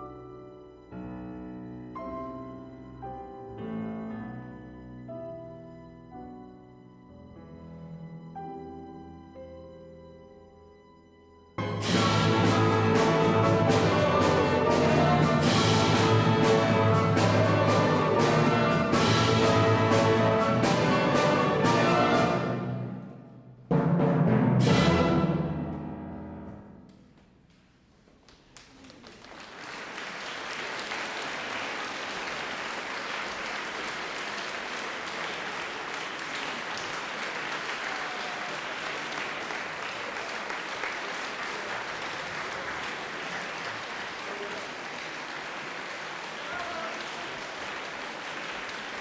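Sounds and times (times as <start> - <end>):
orchestra with piano: 0.0 - 49.0
audience applause: 28.2 - 49.0.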